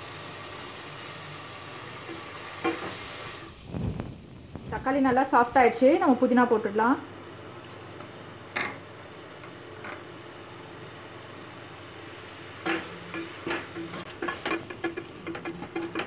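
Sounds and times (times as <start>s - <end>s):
masala sizzling in oil: 0.0s - 16.0s
spatula scraping a pressure cooker: 12.6s - 16.0s.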